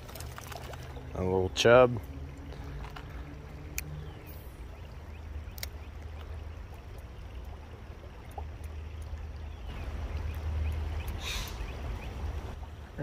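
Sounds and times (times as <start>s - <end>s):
creek running over stones: 0.0s - 13.0s
faint sharp clicks: 3.7s - 3.9s, 5.5s - 6.3s.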